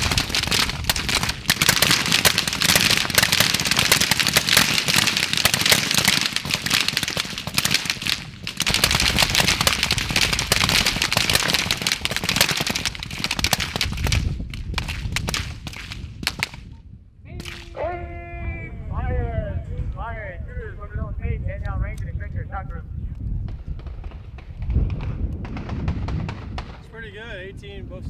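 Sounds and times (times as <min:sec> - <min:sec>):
rifles firing rapidly: 0:00.0 - 0:16.6.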